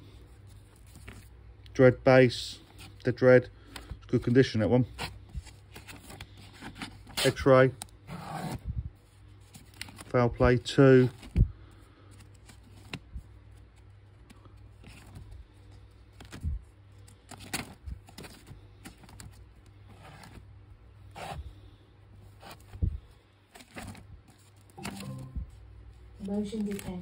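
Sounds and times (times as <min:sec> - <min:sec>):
record sleeves scraping and rustling: 0:04.9 - 0:10.2, 0:12.1 - 0:27.0.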